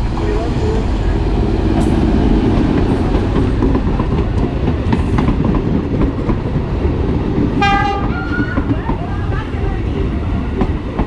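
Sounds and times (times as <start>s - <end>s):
diesel engine rumble: 0.0s - 7.6s.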